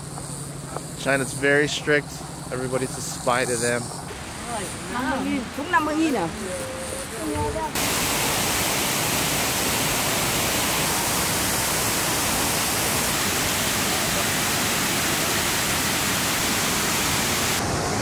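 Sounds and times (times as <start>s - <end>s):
waterfall rushing: 4.1s - 18.0s.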